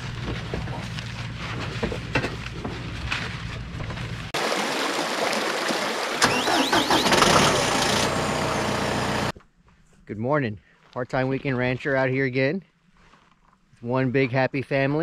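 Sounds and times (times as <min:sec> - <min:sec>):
engine running: 0:06.2 - 0:09.3.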